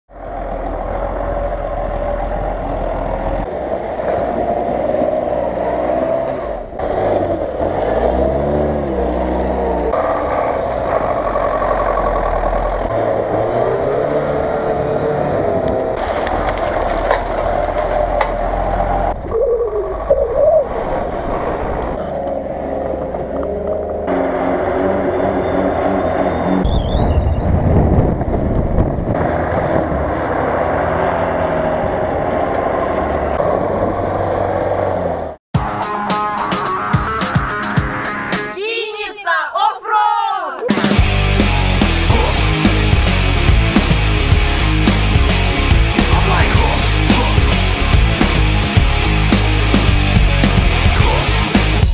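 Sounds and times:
wheels spinning in snow: 0.1 - 35.0
off-road engines revving: 0.1 - 35.4, 40.7 - 51.9.

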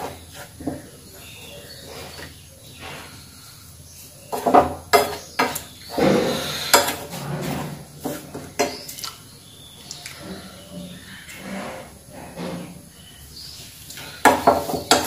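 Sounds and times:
metal spoon scraping a pan: 4.3 - 9.0.

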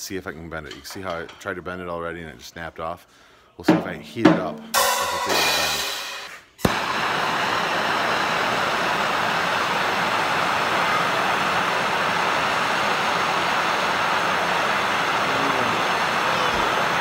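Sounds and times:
gas torch hissing: 5.5 - 17.0.

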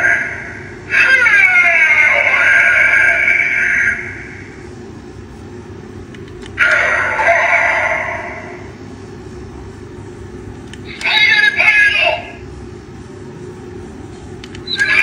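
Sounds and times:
recorded shout from toy: 0.0 - 3.9.

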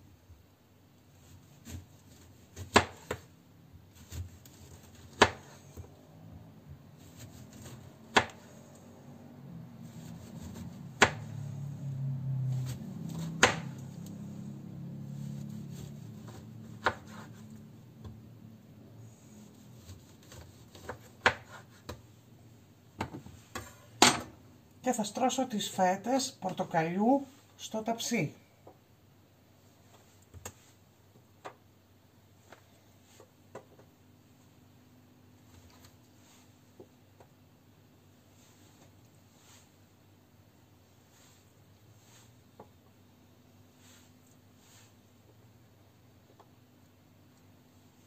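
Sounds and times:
low hum: 7.8 - 19.6.

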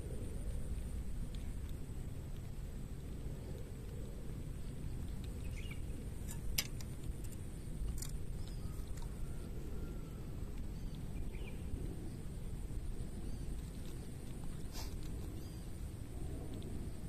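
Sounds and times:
faint bird chirps: 4.6 - 6.0, 8.0 - 12.3, 14.7 - 16.0.

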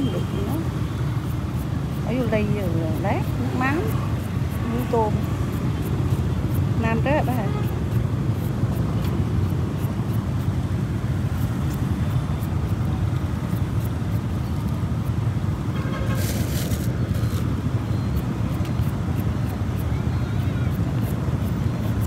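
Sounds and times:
crinkly rustle: 16.1 - 17.4.

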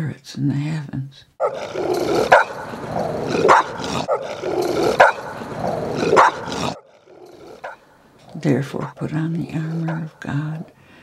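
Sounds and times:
dogs barking: 1.4 - 8.2, 9.6 - 10.2.

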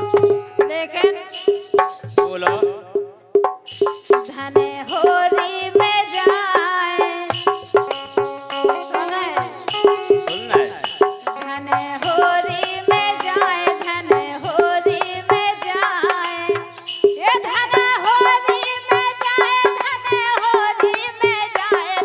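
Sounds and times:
folk melody with held notes: 0.0 - 2.8, 4.6 - 18.6
sharp percussion strokes: 0.0 - 22.0.

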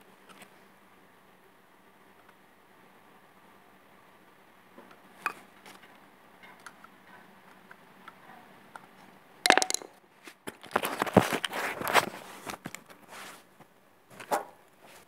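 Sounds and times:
phone rustling and knocking: 9.5 - 9.9.

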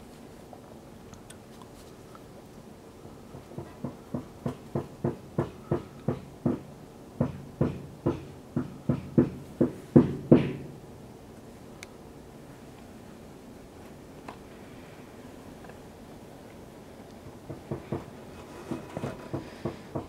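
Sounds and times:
short regular knocks: 17.5 - 20.0.

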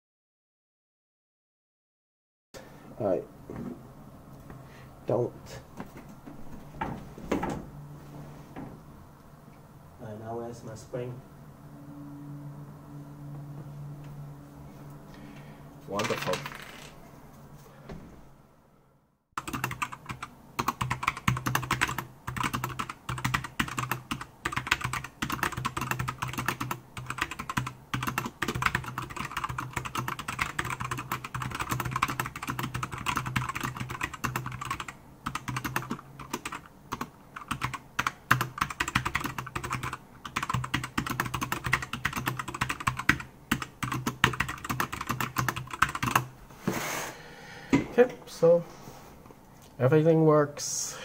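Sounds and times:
fast keyboard typing: 16.0 - 16.6, 19.4 - 46.3.

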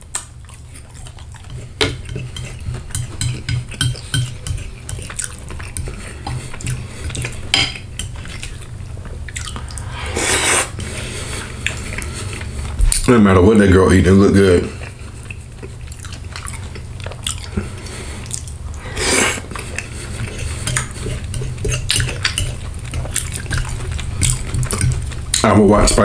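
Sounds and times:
fork clinking on a ceramic plate: 1.8 - 5.0.

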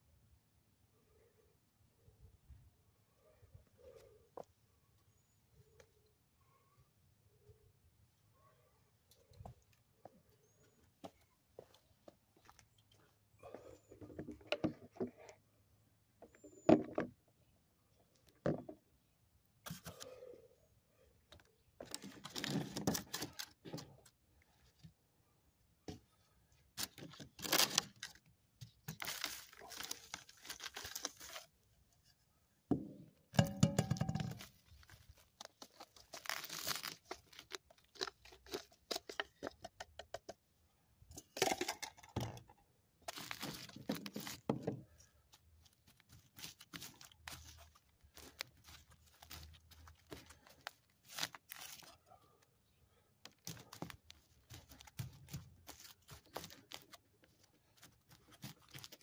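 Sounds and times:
plastic container crinkling: 26.8 - 31.5, 33.4 - 39.6, 43.0 - 52.0, 53.3 - 59.0
potting soil poured and shaken: 28.9 - 31.6, 33.9 - 39.5, 43.0 - 52.0, 53.4 - 59.0
fingers patting soil: 43.1 - 52.0, 53.2 - 59.0.

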